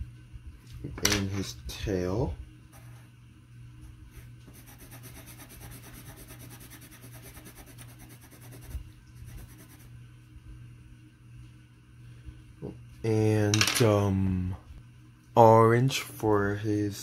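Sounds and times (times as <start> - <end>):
low steady hum: 0.0 - 17.0
pencil scratching on paper: 4.5 - 9.9.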